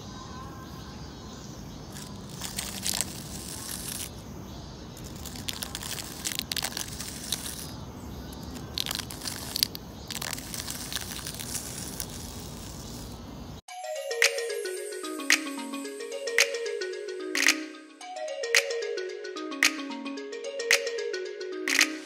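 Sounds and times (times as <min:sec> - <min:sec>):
small rake scraping gravel soil: 0:02.0 - 0:04.1, 0:05.0 - 0:13.2.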